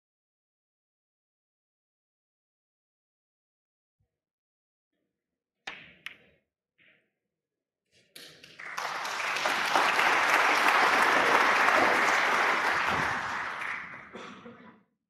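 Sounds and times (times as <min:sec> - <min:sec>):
audience applauding: 0:08.2 - 0:14.3.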